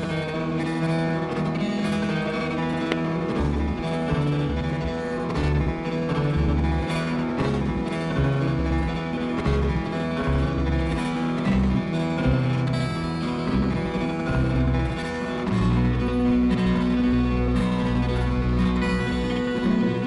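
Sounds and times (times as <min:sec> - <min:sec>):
plucked guitar: 0:00.0 - 0:20.0
low bass line: 0:01.4 - 0:20.0.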